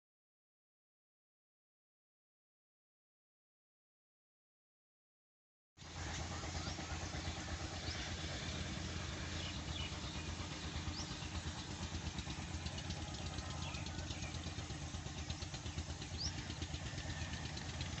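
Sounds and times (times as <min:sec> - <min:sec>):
engine idling: 0:05.8 - 0:18.0
bird chirps: 0:09.2 - 0:17.1.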